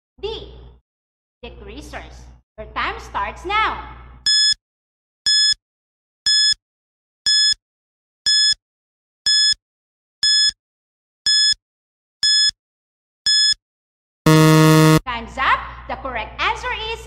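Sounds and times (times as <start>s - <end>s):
short electronic beeps: 14.3s - 15.0s.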